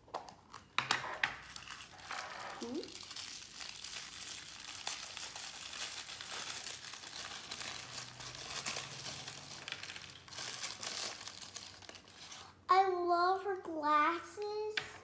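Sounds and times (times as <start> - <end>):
crinkly wrapping being crumpled: 1.4 - 12.6.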